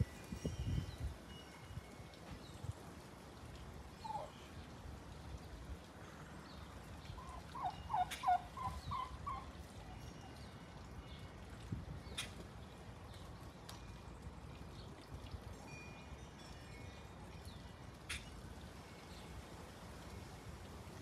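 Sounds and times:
turkey gobbling: 0:04.0 - 0:04.3, 0:07.2 - 0:09.5.

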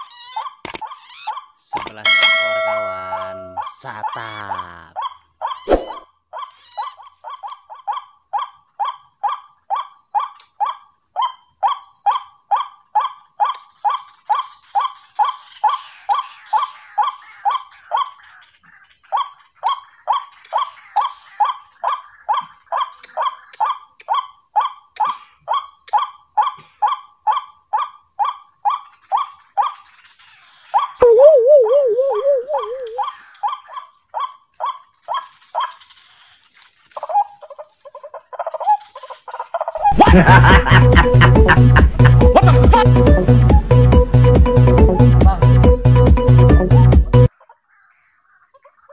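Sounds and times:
louder wavering bird call: 0:02.1 - 0:03.7, 0:31.0 - 0:33.1
waterhen call through loudspeaker: 0:31.0 - 0:33.1.

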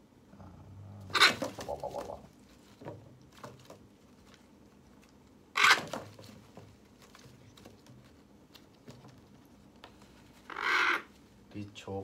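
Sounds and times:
parrot chick harsh call: 0:05.6 - 0:05.8, 0:10.5 - 0:11.1.

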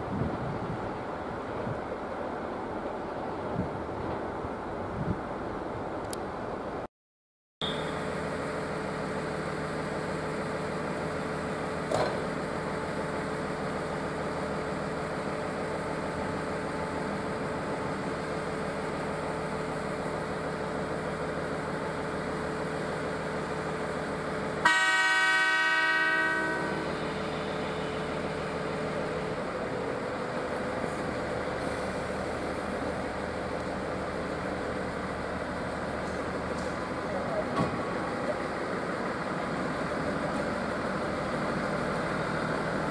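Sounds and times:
moving train hum: 0:00.0 - 0:06.9, 0:07.6 - 0:42.9
train horn blast: 0:24.6 - 0:28.1.

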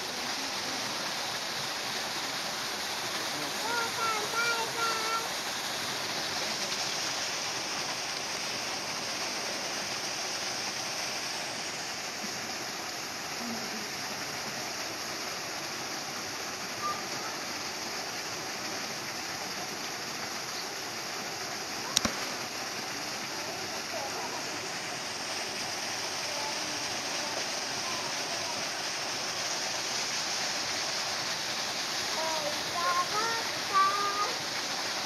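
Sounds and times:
running water rushing: 0:00.0 - 0:35.0.

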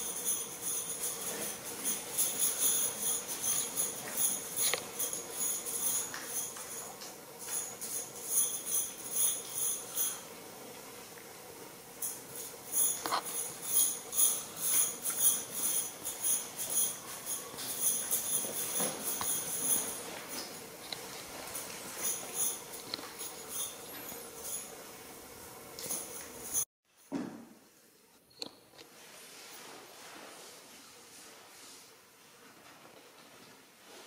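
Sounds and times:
small bells jingling: 0:00.0 - 0:10.3, 0:12.0 - 0:26.7.

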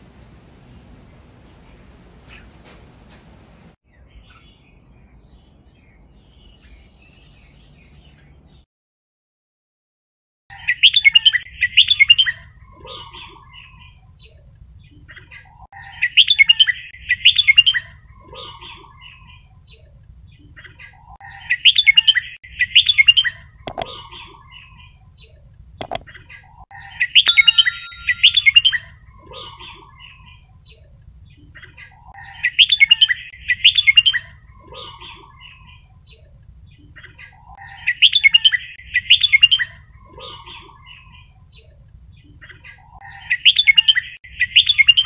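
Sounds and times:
bird chattering song: 0:10.5 - 0:45.0
sharp clicks: 0:23.7 - 0:23.9, 0:25.8 - 0:26.0.

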